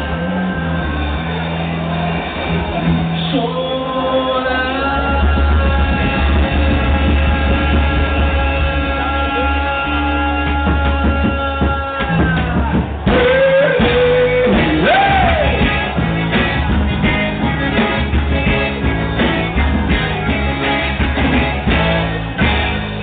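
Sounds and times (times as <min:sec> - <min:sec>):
live band playing: 0:00.0 - 0:23.0
person singing: 0:03.2 - 0:16.6.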